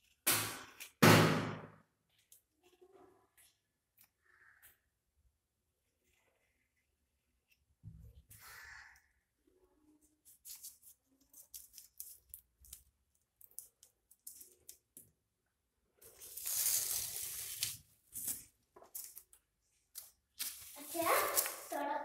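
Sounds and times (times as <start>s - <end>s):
paper sheet crumpling by hand: 16.0s - 19.3s, 20.3s - 22.0s.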